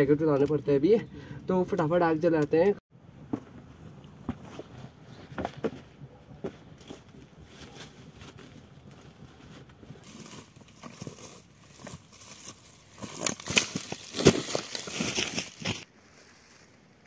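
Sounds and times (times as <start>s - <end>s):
footsteps on dry grass: 6.4s - 17.0s.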